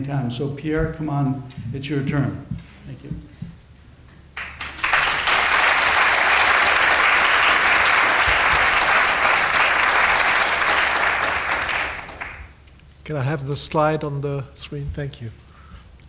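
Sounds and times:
audience applauding: 0:04.4 - 0:12.6.

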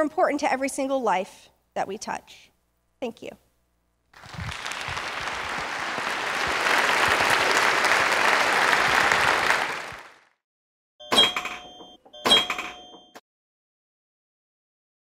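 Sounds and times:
audience applauding: 0:04.2 - 0:10.4.

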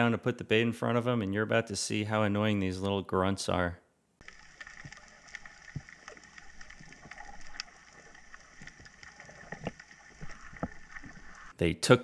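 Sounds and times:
small clicks and crackles: 0:04.2 - 0:11.5.

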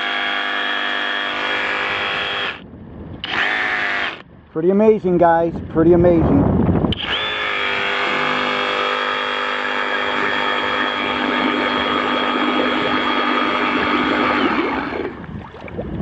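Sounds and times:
reciprocating saw motor whining: 0:00.0 - 0:02.6, 0:03.2 - 0:04.2, 0:06.9 - 0:15.2
blade splashing water: 0:07.6 - 0:16.0.

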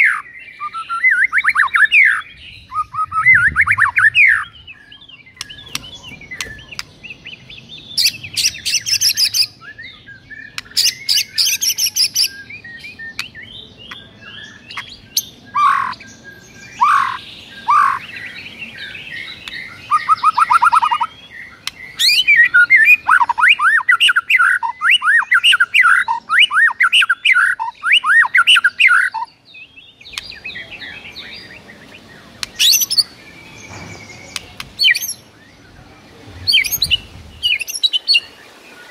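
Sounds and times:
harsh bird chattering: 0:00.0 - 0:04.7
bird singing varied song: 0:00.0 - 0:38.9.

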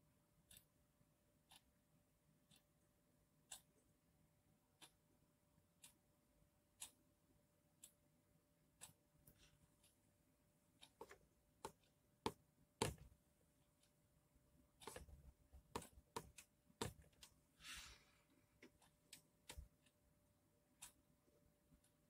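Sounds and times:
faint sharp clicks and taps: 0:10.8 - 0:14.0, 0:14.7 - 0:17.4, 0:18.6 - 0:20.0.

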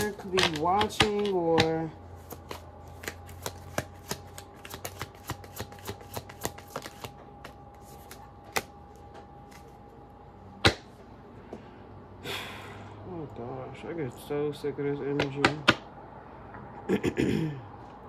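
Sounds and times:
taps on cards: 0:00.0 - 0:08.7
cards being shuffled: 0:00.0 - 0:09.8
cards rustling: 0:00.0 - 0:09.8.

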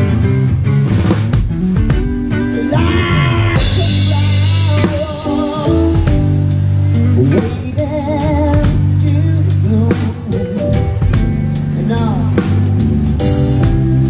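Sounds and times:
live band playing: 0:00.0 - 0:14.0
person singing with vibrato: 0:02.5 - 0:10.8, 0:11.7 - 0:12.6.

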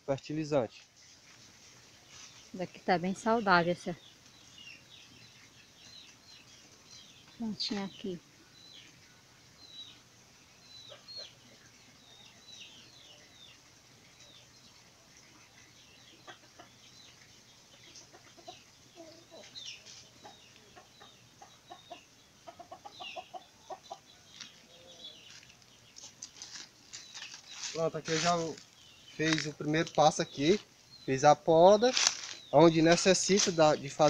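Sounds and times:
chickens clucking: 0:04.7 - 0:28.6, 0:31.4 - 0:34.0.

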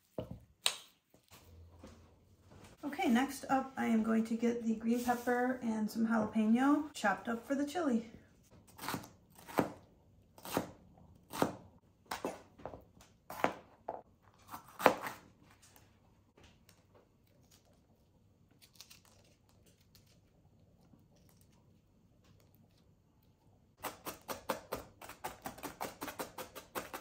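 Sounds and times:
knife chopping on plastic board: 0:08.7 - 0:09.8, 0:10.4 - 0:12.4, 0:23.8 - 0:27.0
pepper tearing by hand: 0:18.5 - 0:20.3.

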